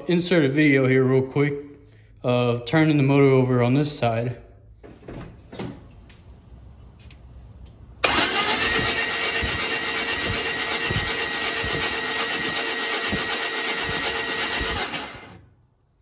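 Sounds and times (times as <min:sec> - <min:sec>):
engine cranking on starter motor: 0:08.0 - 0:15.6.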